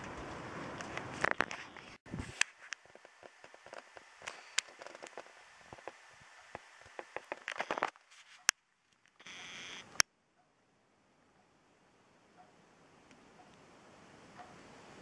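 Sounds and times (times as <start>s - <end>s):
irregular crackles and clicks: 0.0s - 10.6s, 12.4s - 13.7s
faint hiss: 0.0s - 15.0s.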